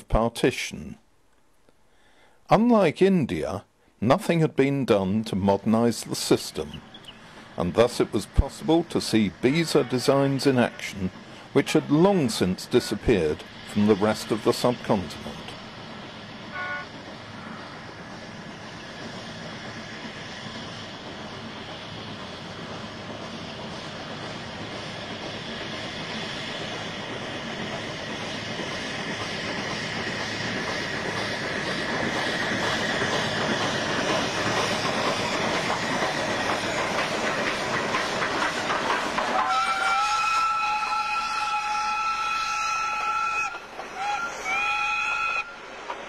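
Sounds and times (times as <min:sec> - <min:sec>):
steam train rumbling: 0:01.9 - 0:46.0
wheels clattering on rails: 0:19.1 - 0:39.8.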